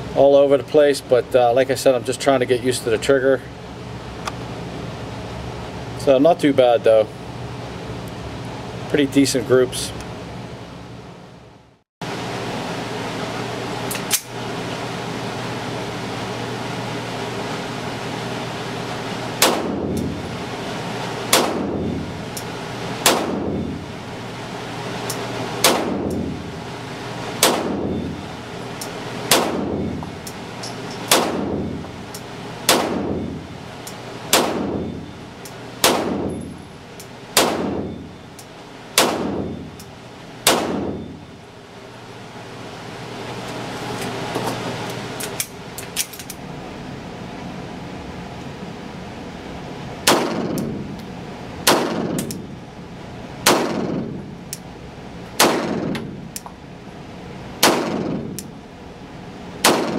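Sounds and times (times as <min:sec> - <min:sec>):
ventilation hum: 0:00.0 - 0:59.9
pistol shots echoing indoors: 0:19.4 - 0:20.1, 0:21.3 - 0:22.0, 0:23.0 - 0:23.7, 0:25.6 - 0:26.3, 0:27.4 - 0:28.1, 0:29.3 - 0:30.0, 0:31.1 - 0:31.8, 0:32.6 - 0:33.4, 0:34.3 - 0:35.0, 0:35.8 - 0:36.5, 0:37.3 - 0:38.0, 0:39.0 - 0:39.7, 0:40.4 - 0:41.1, 0:50.0 - 0:50.8, 0:51.6 - 0:52.4, 0:53.4 - 0:54.0, 0:55.4 - 0:56.1, 0:57.6 - 0:58.4, 0:59.6 - 0:59.9.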